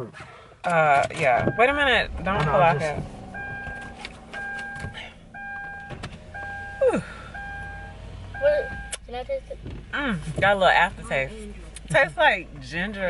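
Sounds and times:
car warning chime: 1.1s - 9.0s.

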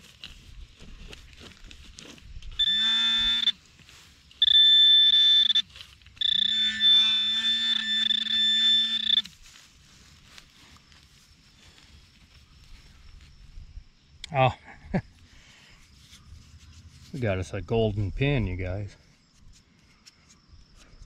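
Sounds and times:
metal detector beep tone: 2.5s - 3.6s, 4.4s - 9.4s.

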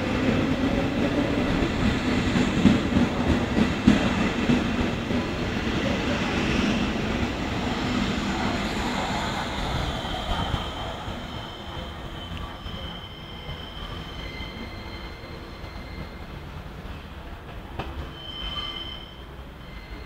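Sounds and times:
train wheels rumbling: 0.0s - 20.0s
high wheel squeal: 9.6s - 16.5s, 18.0s - 20.0s.

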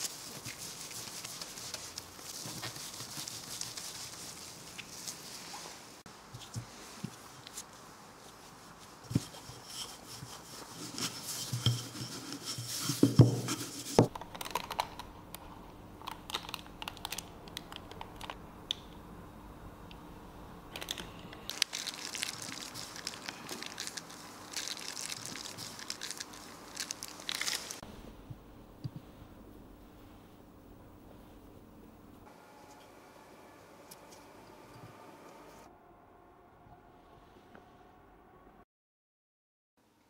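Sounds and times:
plastic piping bag crinkling: 0.0s - 5.4s, 20.8s - 27.8s
faint steady hum: 13.5s - 38.6s.

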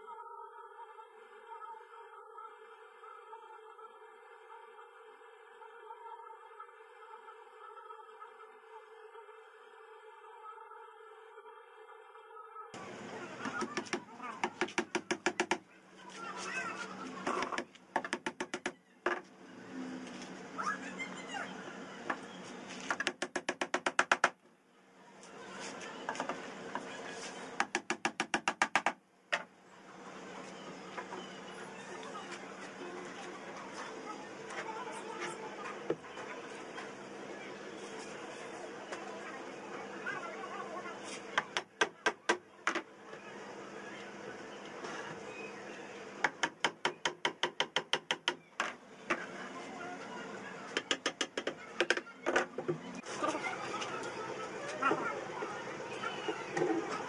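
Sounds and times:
small hammer tapping on wood: 13.4s - 15.6s, 46.2s - 48.7s
hammer tapping on wooden cabinet: 17.4s - 19.2s.

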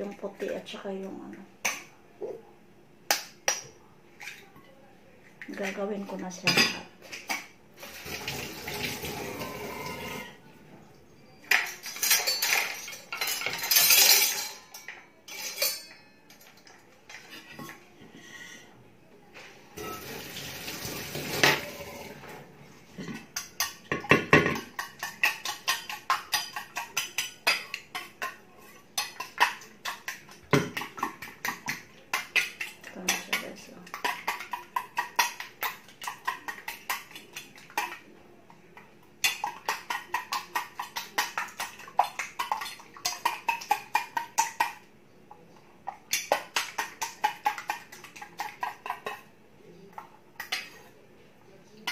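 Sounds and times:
dishes clattering: 6.4s - 10.4s, 11.5s - 17.8s, 19.8s - 38.0s, 39.2s - 44.8s.

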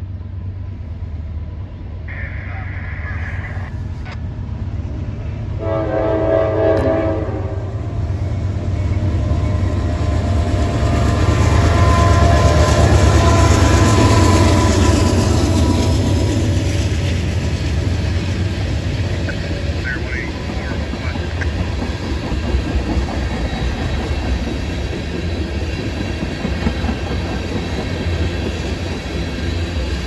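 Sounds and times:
locomotive engines rumbling: 0.0s - 30.0s
train wheels on rails: 3.8s - 30.0s
train horn blast: 5.6s - 7.8s, 11.5s - 15.1s.

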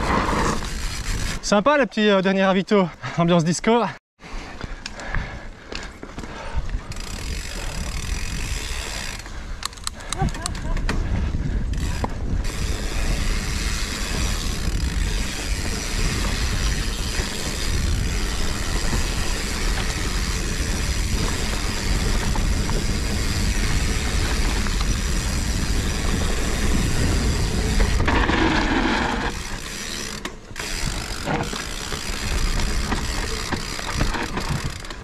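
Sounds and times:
bike and tyres rattling: 0.0s - 1.6s, 4.2s - 35.0s
bike freewheel ratcheting: 0.4s - 1.4s, 6.8s - 35.0s
wind buffeting microphone: 6.2s - 29.6s.

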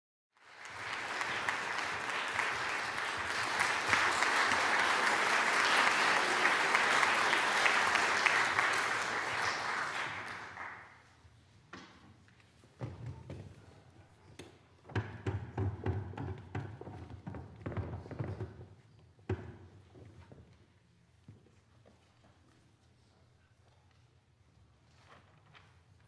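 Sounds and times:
audience applauding: 0.4s - 11.1s.

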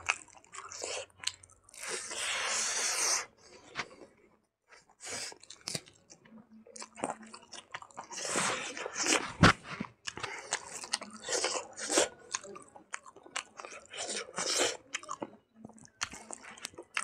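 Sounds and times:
chewing with wet mouth clicks: 0.0s - 2.0s, 5.3s - 8.2s, 10.0s - 17.0s.

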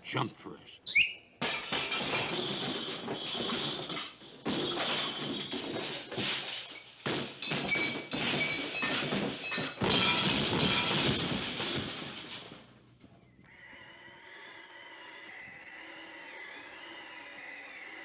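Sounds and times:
crash and thud effects: 4.5s - 12.7s.

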